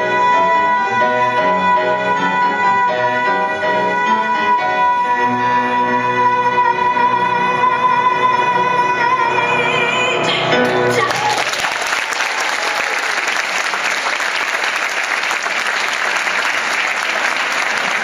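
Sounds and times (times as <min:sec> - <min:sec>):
piano and strings: 0:00.0 - 0:11.8
audience applauding: 0:10.6 - 0:18.0.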